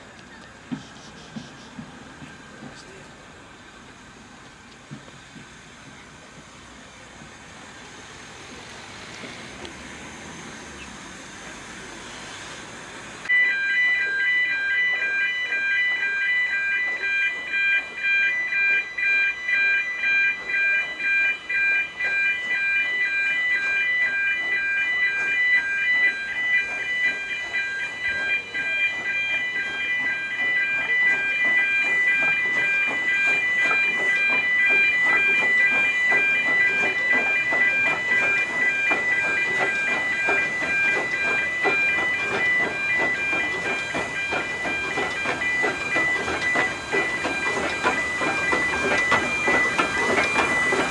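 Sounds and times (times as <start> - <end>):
steam locomotive running: 0.0 - 50.9
level crossing alarm tones: 13.3 - 50.9.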